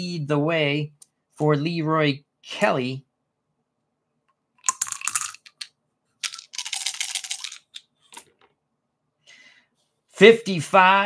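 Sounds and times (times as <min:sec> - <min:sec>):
dice rattling and clattering: 0:04.6 - 0:08.5.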